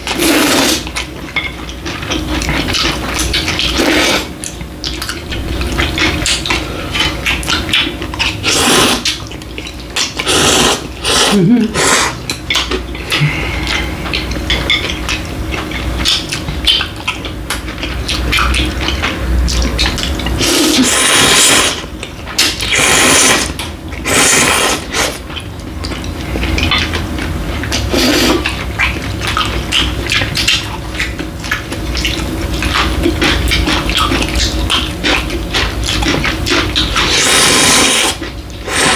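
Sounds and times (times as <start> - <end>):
chewing with wet smacks: 0.0 - 38.9
people slurping noodles: 0.1 - 0.9, 3.6 - 4.3, 8.2 - 9.2, 10.2 - 12.3, 13.0 - 14.3, 20.4 - 21.8, 22.4 - 25.2, 27.8 - 28.5, 35.6 - 38.9.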